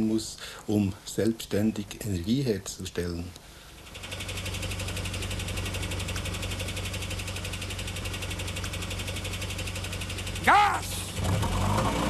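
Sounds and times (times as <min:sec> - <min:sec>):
van engine idling: 0:03.4 - 0:12.0.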